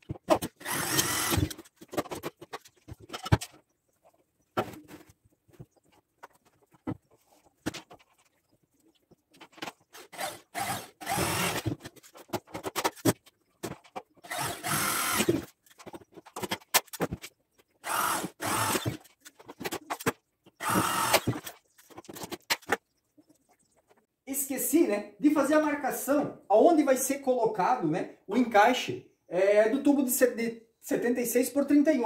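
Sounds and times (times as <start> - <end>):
handling knocks and clicks: 0.0 - 0.6, 1.5 - 10.1, 11.6 - 14.2, 15.4 - 17.8, 19.0 - 20.6, 21.2 - 24.0
electric drill boring into metal: 0.6 - 1.6, 10.1 - 11.7, 14.3 - 15.4, 17.8 - 19.0, 20.6 - 21.4.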